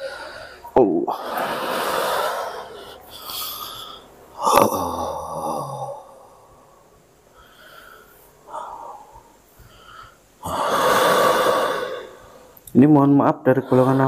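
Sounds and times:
faint breaths: 0.0s - 12.6s, 13.5s - 14.0s
man groaning: 4.4s - 6.1s
loud exhale: 10.4s - 12.2s.

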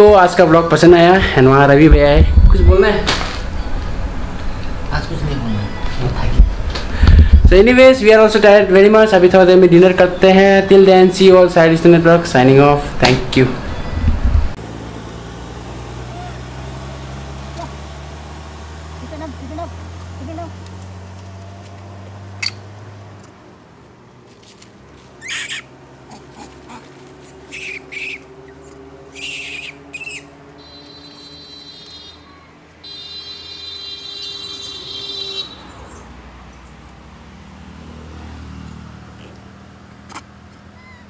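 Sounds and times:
car engine idling: 13.4s - 23.2s
short shrill calls: 25.2s - 25.7s, 27.4s - 35.0s
whistling call: 29.2s - 33.3s.

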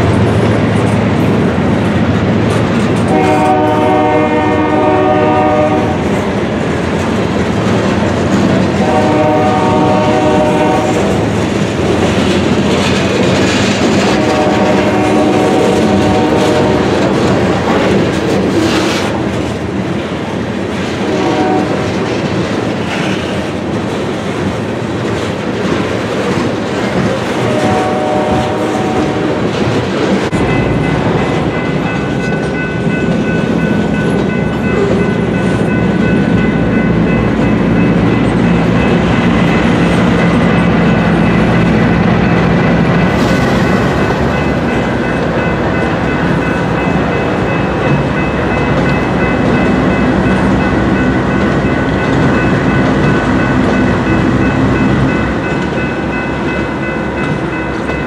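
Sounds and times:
freight cars rumbling on rails: 0.0s - 58.0s
locomotive horn blasts: 3.1s - 6.1s, 8.8s - 11.2s, 14.1s - 17.0s, 21.0s - 21.9s, 27.4s - 29.5s.

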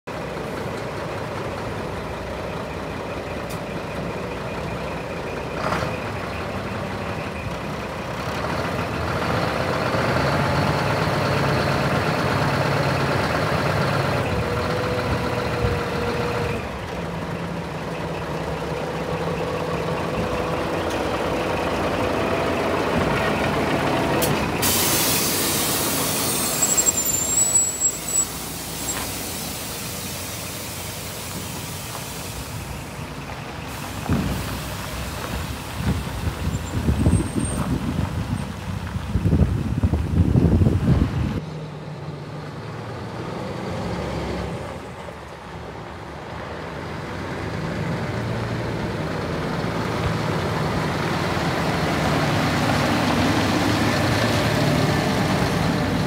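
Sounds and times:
truck diesel engine running: 0.1s - 56.0s
steady hydraulic tone: 24.6s - 32.8s
air hiss: 24.6s - 32.9s.

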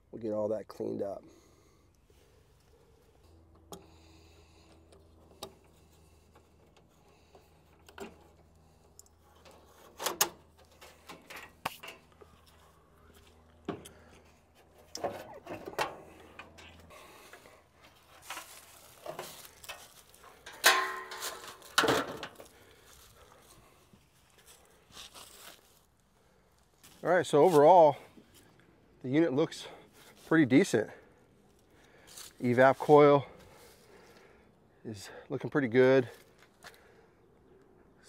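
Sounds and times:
sheet metal panels clanking: 20.5s - 22.2s.

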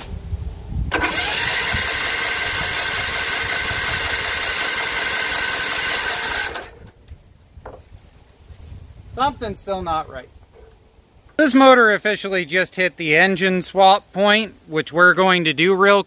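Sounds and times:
engine cranking by electric starter: 0.9s - 7.0s.

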